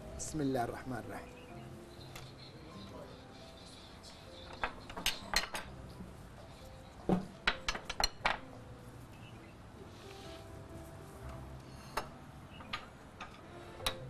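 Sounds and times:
ceramic bowls clinking: 4.6s - 6.0s.

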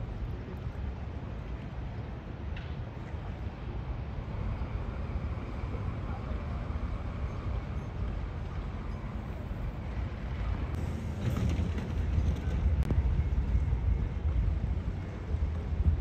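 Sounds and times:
low noisy rumble: 0.0s - 16.0s
wind buffeting microphone: 7.0s - 16.0s.

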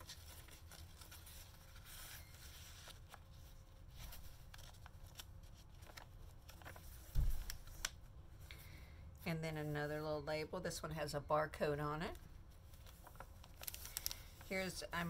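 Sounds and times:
paper rustling: 0.0s - 8.0s, 12.5s - 15.0s
page thumping: 7.0s - 7.8s.

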